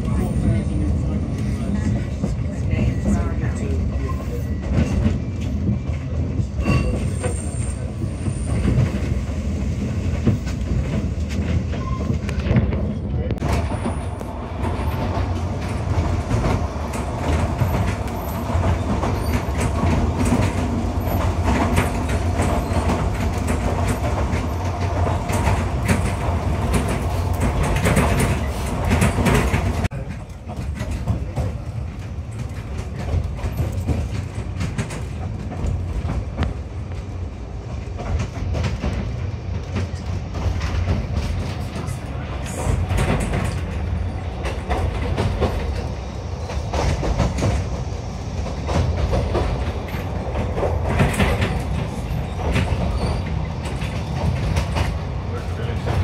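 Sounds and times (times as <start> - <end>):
railway carriage rumbling: 0.0 - 56.0
wheels rattling and clicking: 8.4 - 37.1.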